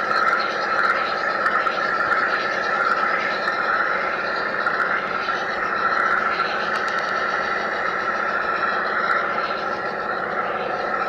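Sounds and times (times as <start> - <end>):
model train motor whine: 0.0 - 11.0
wheels on rails: 0.0 - 11.0
faint clicks: 6.7 - 7.2.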